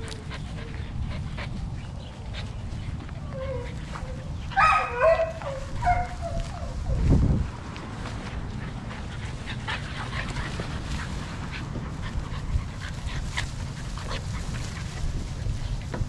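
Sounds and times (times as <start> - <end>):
puppies yipping and whimpering: 0.0 - 7.1
steady low rumble: 5.3 - 16.0.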